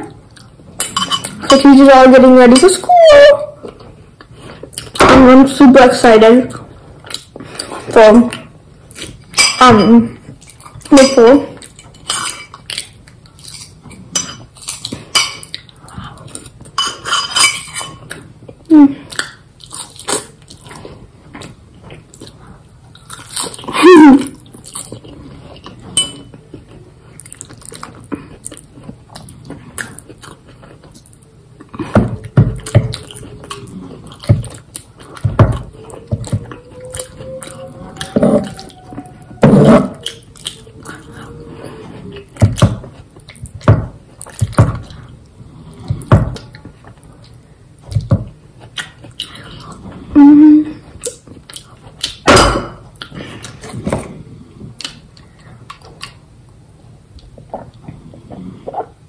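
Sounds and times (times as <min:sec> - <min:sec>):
wet chewing and smacking: 0:06.5 - 0:09.4, 0:11.6 - 0:16.8, 0:18.0 - 0:41.4, 0:42.0 - 0:50.1, 0:50.8 - 0:52.3, 0:54.7 - 0:56.3.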